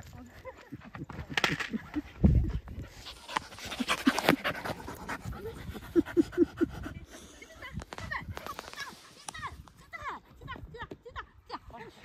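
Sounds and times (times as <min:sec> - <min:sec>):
dog panting: 0:01.9 - 0:07.8.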